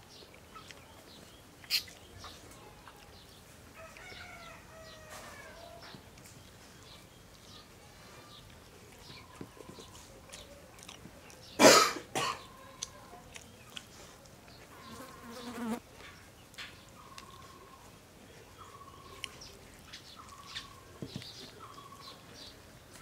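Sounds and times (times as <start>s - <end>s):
eating clicks: 8.4s - 11.6s, 12.6s - 14.6s
man coughing: 11.6s - 12.4s.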